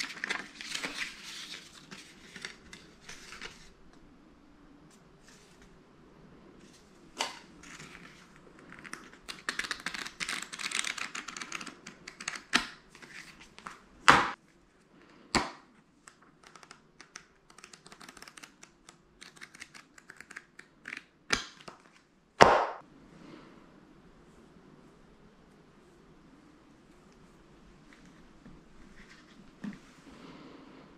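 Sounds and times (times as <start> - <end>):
paper rustling and crinkling: 0.0 - 3.8.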